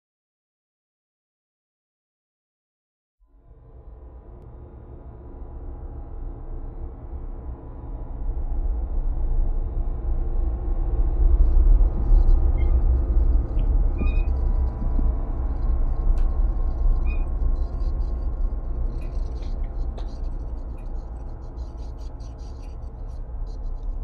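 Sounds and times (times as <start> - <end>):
low outdoor rumble: 3.5 - 24.0
faint high chirps: 17.0 - 17.4.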